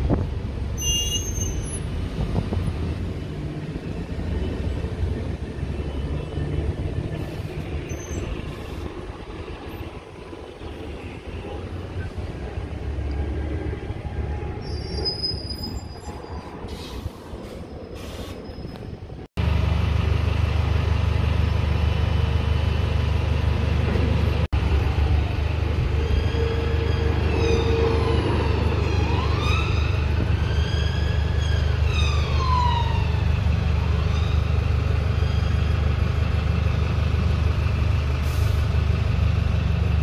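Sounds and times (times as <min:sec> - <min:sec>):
buses running: 0:00.0 - 0:40.0
brief high squeals: 0:00.8 - 0:01.8
bus engine idling: 0:19.4 - 0:26.0, 0:33.0 - 0:40.0.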